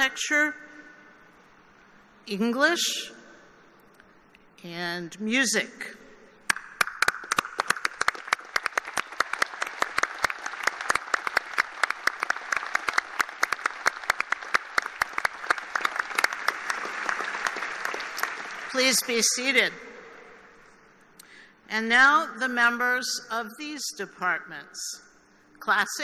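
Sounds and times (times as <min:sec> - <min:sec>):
crowd applauding: 0:06.5 - 0:18.8
sharp individual claps: 0:06.5 - 0:18.8.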